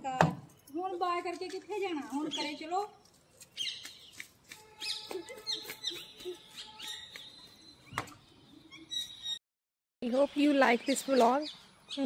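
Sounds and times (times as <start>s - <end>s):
birds chirping: 2.1s - 9.4s, 10.0s - 12.0s.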